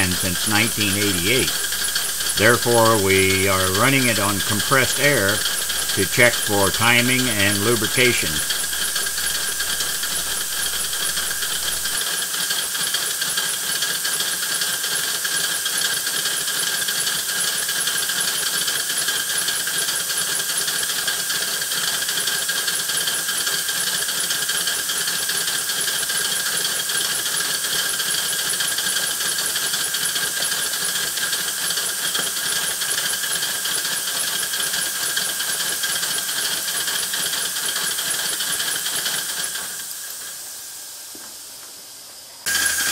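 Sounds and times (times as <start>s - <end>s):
model locomotive running gear: 8.3s - 40.6s, 42.5s - 42.9s.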